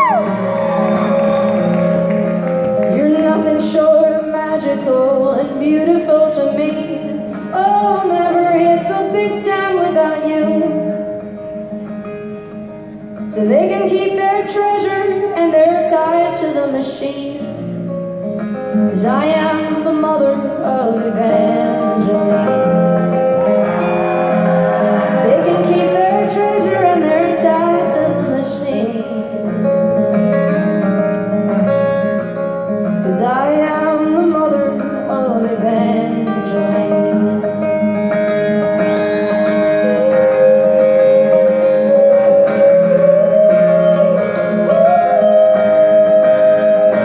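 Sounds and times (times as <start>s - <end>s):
strummed acoustic guitar: 0.2s - 47.0s
woman singing: 2.8s - 11.0s, 13.2s - 17.6s, 18.7s - 23.2s, 24.9s - 29.6s, 32.9s - 38.1s, 39.4s - 47.0s.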